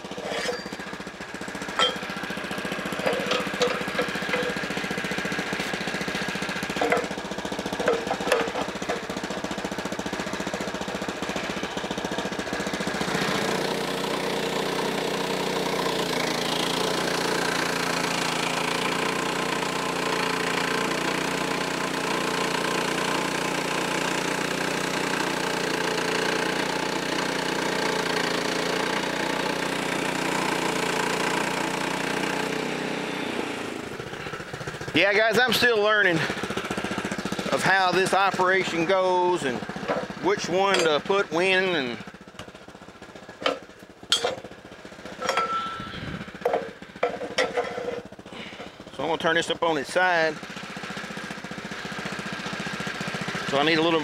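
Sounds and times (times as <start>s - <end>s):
portable sawmill engine running: 0.0s - 54.0s.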